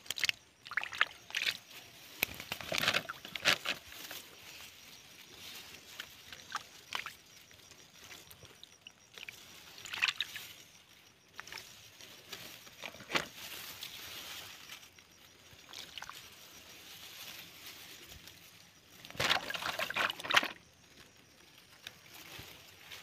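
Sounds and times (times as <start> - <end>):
hand sloshing through muddy water: 0.1 - 1.7, 9.1 - 10.4, 19.1 - 20.6.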